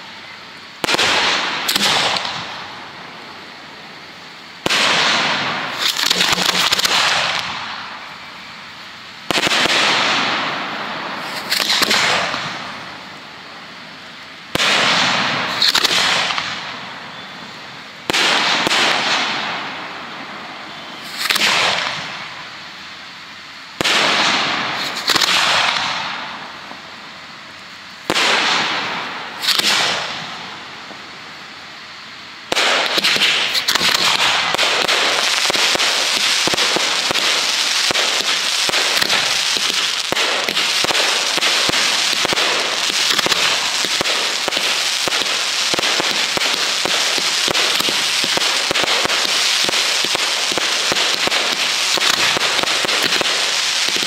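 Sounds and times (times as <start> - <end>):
fireworks bursts: 0.0 - 54.0
crackling of small pops: 32.6 - 54.0.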